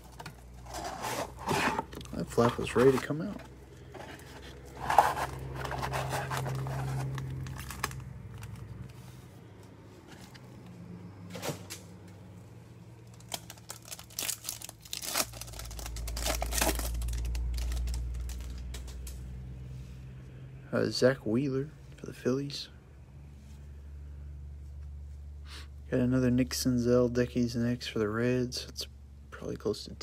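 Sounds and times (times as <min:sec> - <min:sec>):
cards rustling and scraping: 0:00.0 - 0:09.3, 0:13.2 - 0:19.2.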